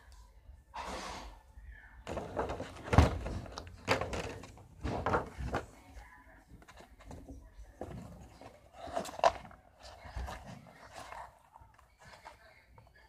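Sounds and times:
knocks and thumps: 2.1s - 5.8s.

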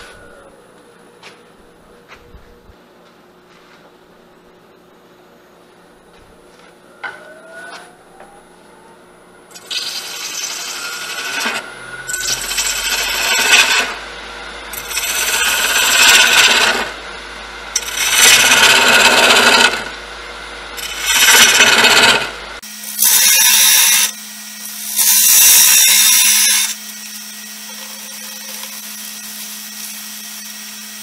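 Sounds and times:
tool scraping wood on lathe: 9.5s - 14.0s, 14.7s - 17.0s, 17.7s - 20.0s, 20.8s - 22.3s
wood lathe running: 9.5s - 22.6s, 23.4s - 31.0s.

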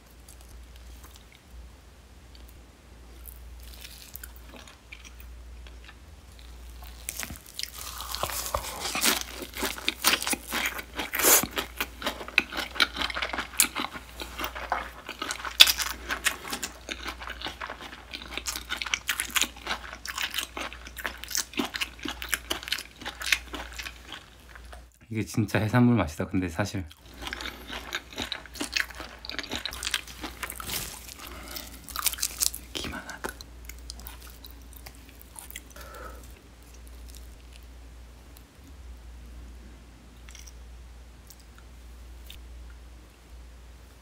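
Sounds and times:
crunchy chewing: 0.0s - 1.5s, 2.3s - 25.0s, 26.9s - 37.7s.

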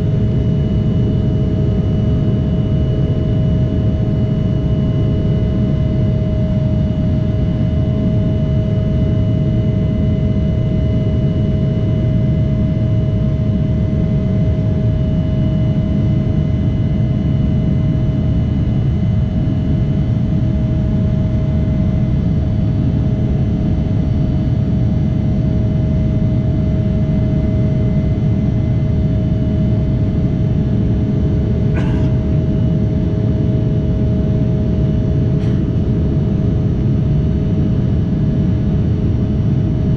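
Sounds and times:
engine whine: 0.0s - 39.9s
airliner cabin rumble: 25.8s - 39.9s.

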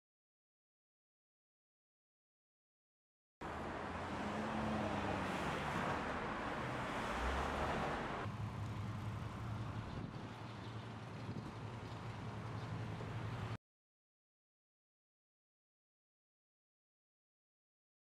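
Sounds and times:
city traffic hiss and rumble: 3.4s - 13.6s.

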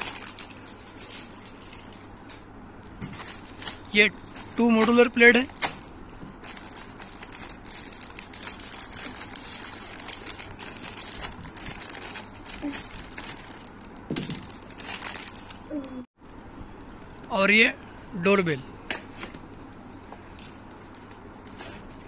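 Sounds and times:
plastic wrapper crinkling: 0.0s - 2.4s, 3.0s - 15.7s, 20.3s - 22.0s.

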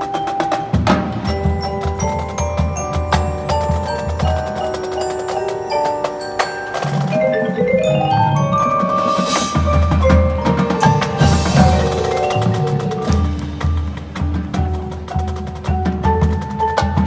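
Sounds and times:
mallet percussion notes: 0.0s - 17.0s
low drum beats: 0.7s - 17.0s.

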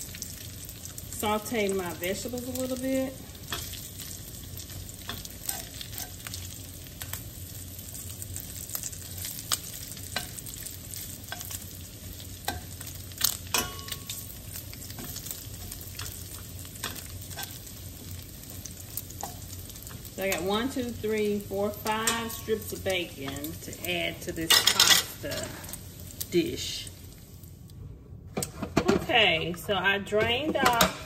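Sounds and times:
bacon sizzling in a skillet: 0.0s - 27.6s
metal tongs clicking on pan: 11.3s - 11.6s, 12.4s - 14.2s, 23.3s - 23.6s.

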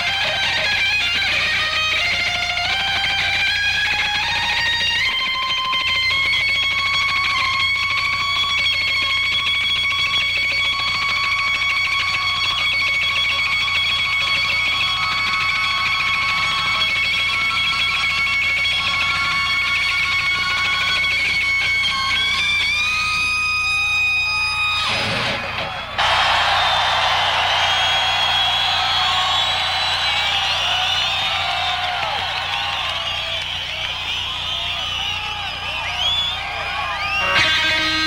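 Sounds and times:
electric guitar sustained note: 27.6s - 38.0s.

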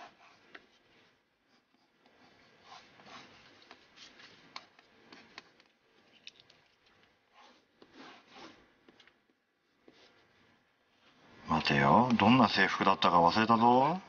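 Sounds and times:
drawing tool scratching paper: 0.0s - 5.4s, 7.3s - 8.7s.

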